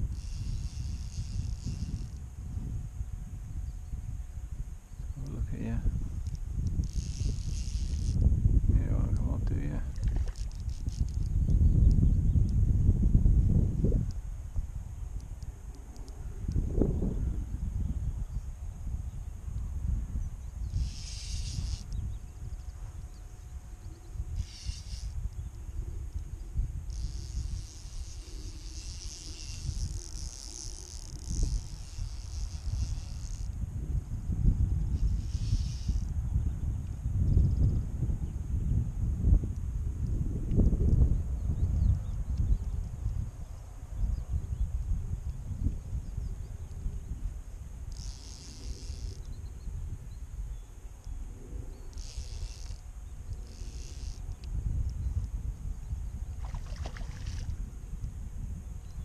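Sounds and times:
fishing reel ratchet buzz: 0.0 - 2.4, 6.2 - 8.3, 9.9 - 12.6, 20.6 - 22.2, 24.2 - 33.6, 34.8 - 36.2, 47.8 - 49.3, 51.9 - 55.0
wind buffeting microphone: 0.0 - 59.0.

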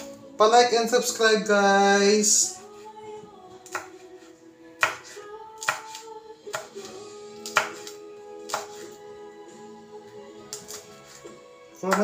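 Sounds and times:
knife chopping on a cutting board: 3.6 - 4.0, 4.8 - 9.0, 10.5 - 12.0.

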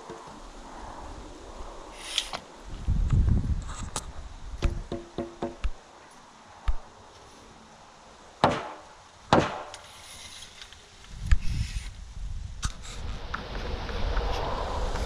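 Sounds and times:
wind rumble on microphone: 0.0 - 5.0, 11.0 - 15.0
knocks on wooden lumber: 4.6 - 5.8.

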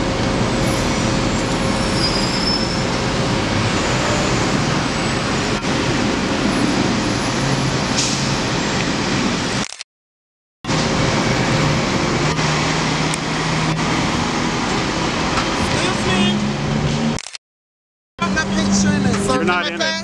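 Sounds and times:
heavy street traffic: 0.0 - 9.8, 10.6 - 17.4, 18.2 - 20.0
truck diesel engine passing: 10.7 - 17.1, 18.2 - 20.0.

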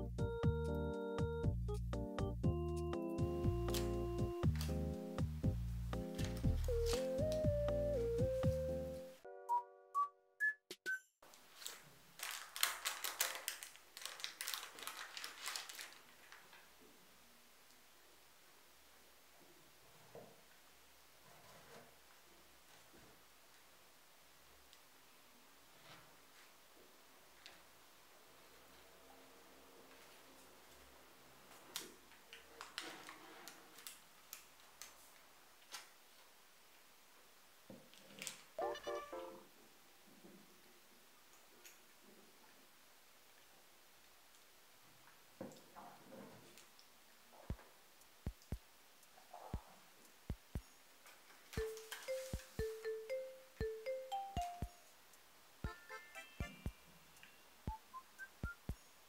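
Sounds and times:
baking paper crinkling: 11.3 - 16.7, 31.6 - 36.0, 51.0 - 52.7
electronic chime notes: 51.6 - 54.9, 55.7 - 57.5.

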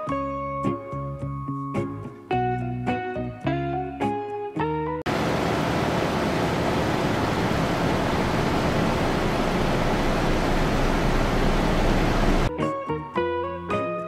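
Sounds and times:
loud static hiss: 5.1 - 12.5.

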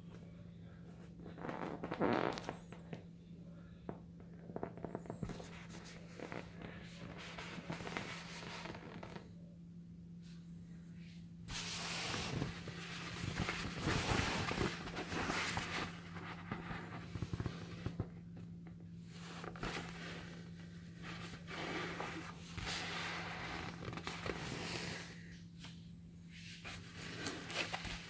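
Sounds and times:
steady low hum: 0.0 - 28.0
plastic beach balls rustling: 11.5 - 18.1.

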